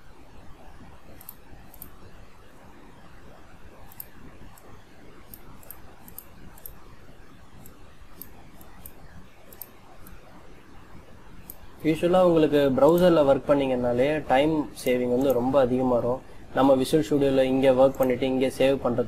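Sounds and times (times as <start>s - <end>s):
low background hiss: 0.0s - 19.0s
mouse and keyboard clicks: 1.1s - 2.0s.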